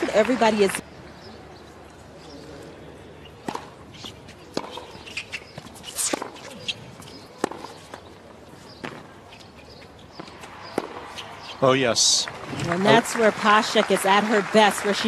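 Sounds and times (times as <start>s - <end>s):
arena background noise: 0.0s - 15.0s
ball bouncing: 3.4s - 3.8s, 4.5s - 6.7s, 7.4s - 7.8s
racket striking ball: 3.4s - 6.5s, 7.1s - 8.1s, 10.1s - 11.1s.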